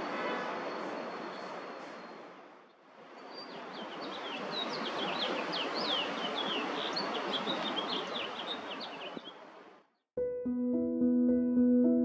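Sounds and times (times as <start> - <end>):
city noise rumble: 0.0 - 10.0
songbirds chirping: 1.3 - 10.0.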